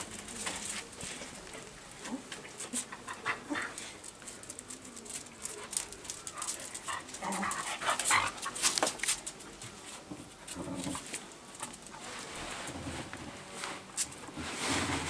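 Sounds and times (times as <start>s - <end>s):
dogs panting: 5.5s - 8.8s.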